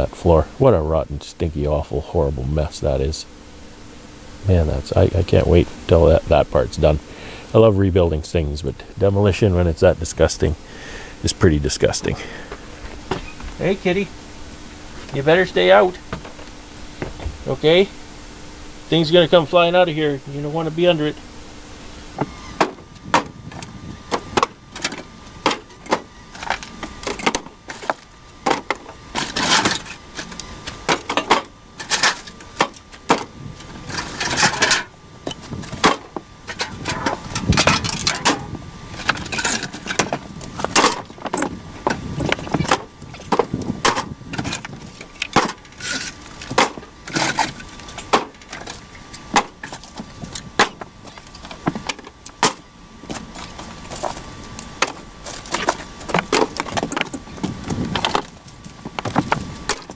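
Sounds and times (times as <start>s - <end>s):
wooden boards cracking and thudding: 22.2s - 33.3s, 35.4s - 54.2s, 54.8s - 59.9s
pieces thrown into steel trailer: 33.9s - 41.5s.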